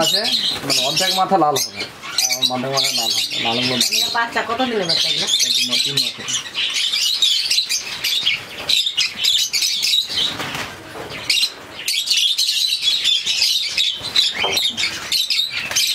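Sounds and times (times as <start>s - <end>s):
wings flapping: 0.0s - 4.9s, 7.9s - 11.8s, 13.2s - 15.9s
birds chattering and squawking: 0.0s - 15.9s.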